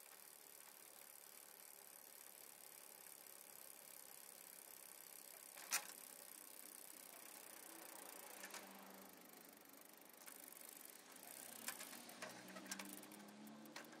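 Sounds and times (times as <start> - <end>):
vinyl surface hiss and clicks: 10.2 - 14.0.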